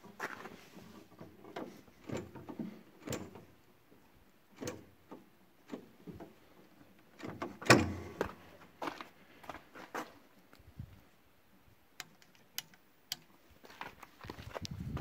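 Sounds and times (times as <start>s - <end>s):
footsteps on icy gritty ground: 0.2s - 0.6s, 8.2s - 10.2s, 13.6s - 15.0s.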